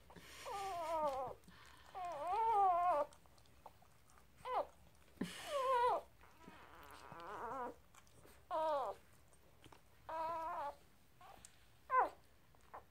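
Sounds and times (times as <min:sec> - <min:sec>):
puppies squealing: 0:05.4 - 0:07.8, 0:08.5 - 0:09.0.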